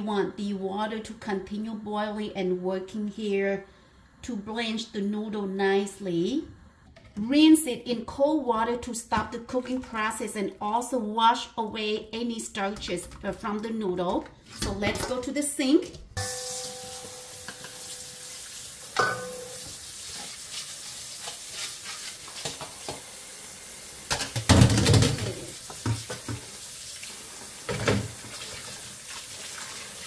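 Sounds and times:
tap water running into bowl: 0:16.2 - 0:23.2, 0:23.9 - 0:30.0
metal strainer clanking: 0:19.0 - 0:19.6.

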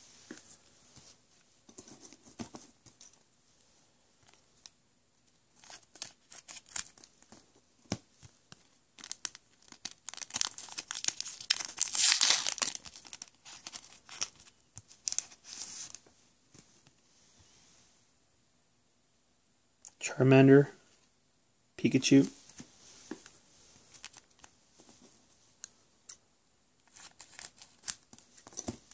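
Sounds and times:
plastic wrapper crinkling and tearing: 0:05.6 - 0:07.2, 0:09.0 - 0:15.4, 0:26.9 - 0:28.9.

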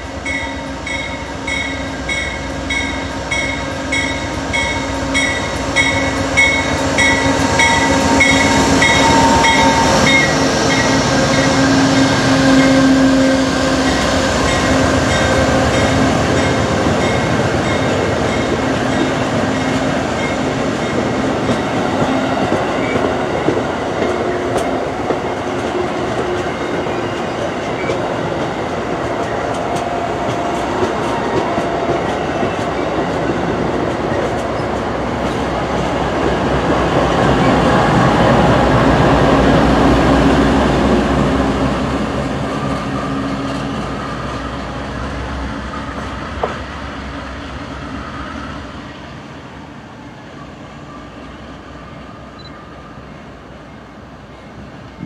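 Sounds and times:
locomotive bell ringing: 0:00.0 - 0:12.9, 0:13.8 - 0:21.0
diesel locomotive engine hum: 0:00.0 - 0:55.0
train coaches rumbling and clattering: 0:00.0 - 0:55.0.

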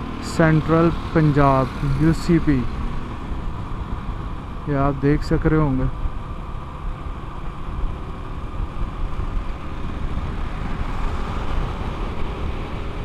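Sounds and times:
motorcycle engine running: 0:00.0 - 0:13.0
passing traffic: 0:00.0 - 0:13.0
wind rushing on microphone: 0:07.6 - 0:13.0.

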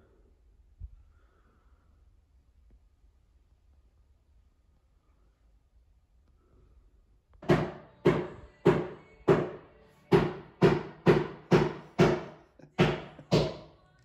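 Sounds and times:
hammer driving nails: 0:07.4 - 0:13.8.

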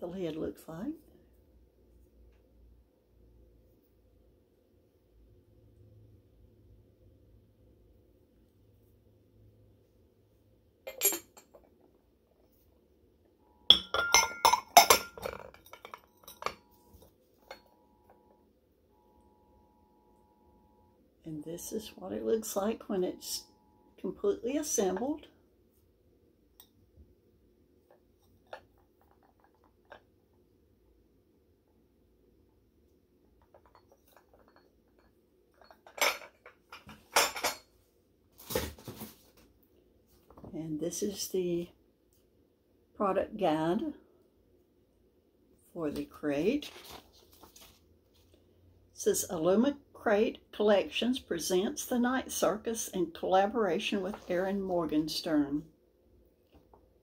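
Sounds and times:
ceramic tea set clinking: 0:13.7 - 0:18.2, 0:33.4 - 0:37.6.

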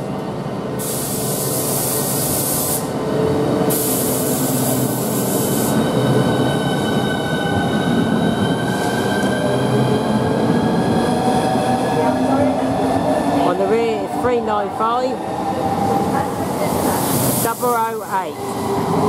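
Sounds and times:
loud hiss: 0:00.8 - 0:03.0, 0:03.7 - 0:05.8, 0:16.8 - 0:18.3.

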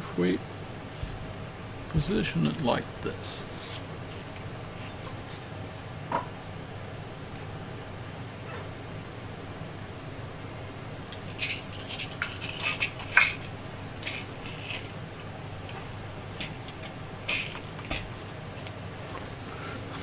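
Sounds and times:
plastic parts clicking and knocking: 0:16.4 - 0:18.1.

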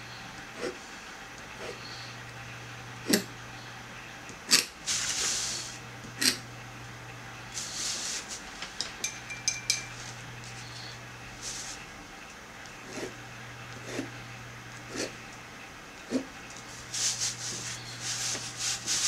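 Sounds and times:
steady low hum: 0:00.0 - 0:19.0
light clinks: 0:08.8 - 0:10.2
pen scratching on paper: 0:12.8 - 0:13.1, 0:13.8 - 0:14.1, 0:14.9 - 0:15.2.

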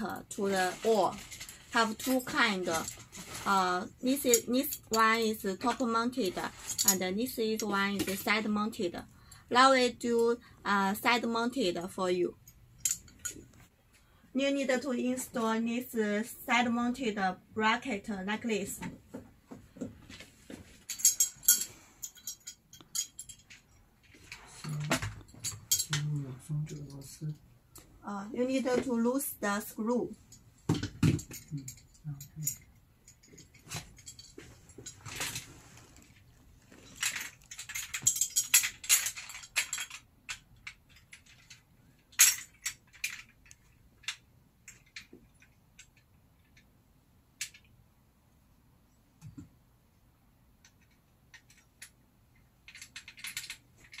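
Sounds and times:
metal hardware clicking and clinking: 0:12.5 - 0:13.5, 0:20.8 - 0:26.1, 0:30.3 - 0:35.4, 0:36.9 - 0:46.7, 0:50.6 - 0:54.0
sharp clicks and clinks: 0:20.9 - 0:23.8.

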